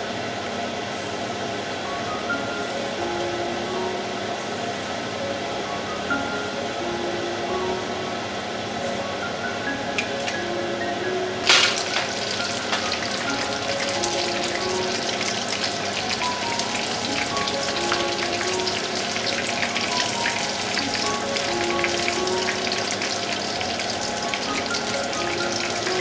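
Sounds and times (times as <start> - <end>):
fish deep-frying in oil: 11.3 - 26.0.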